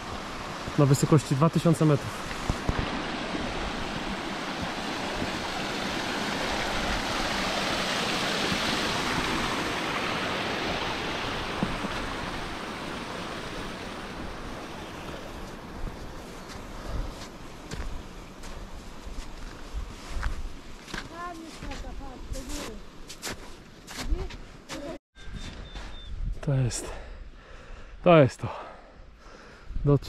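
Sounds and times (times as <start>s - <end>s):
mountain stream rushing: 0.0s - 21.8s.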